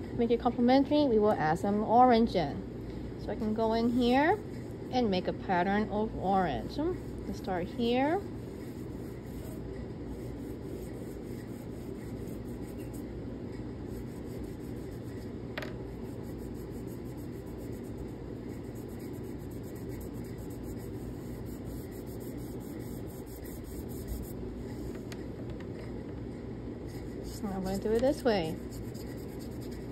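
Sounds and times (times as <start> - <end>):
pastel rubbing on paper: 6.5 - 13.1, 13.9 - 15.3, 15.9 - 25.0, 26.9 - 29.9.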